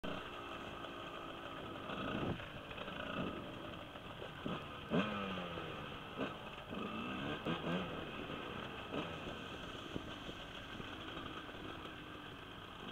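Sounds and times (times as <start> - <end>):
dirt bike engine revving: 1.7 - 10.1.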